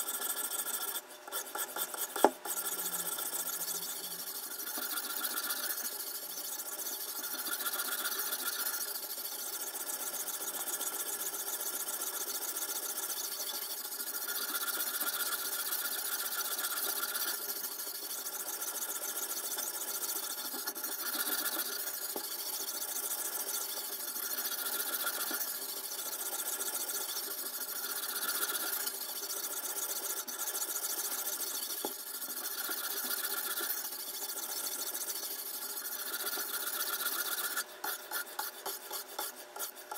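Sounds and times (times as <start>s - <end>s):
sharpening stone rasping on knife: 0.0s - 39.9s.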